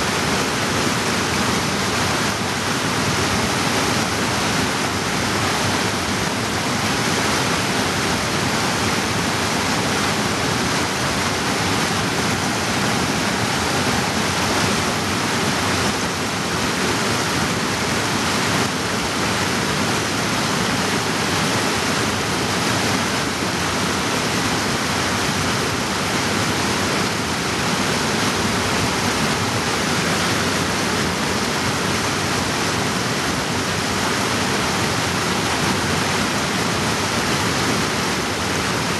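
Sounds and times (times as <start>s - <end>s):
creek rushing over boulders: 0.0s - 38.9s.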